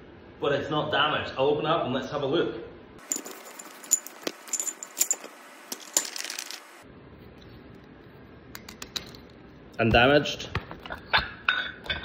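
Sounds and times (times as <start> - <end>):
metal weight plates clinking: 3.0 - 6.6.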